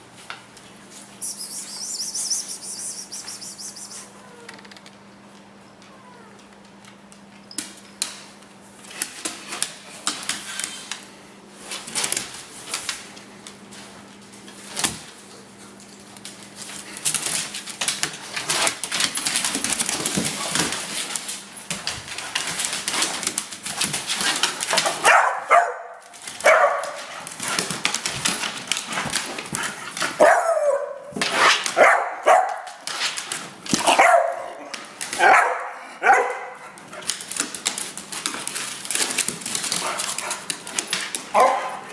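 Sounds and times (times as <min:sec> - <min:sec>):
dogs barking and yipping: 0:25.0 - 0:27.2, 0:33.8 - 0:36.7, 0:41.3 - 0:41.9.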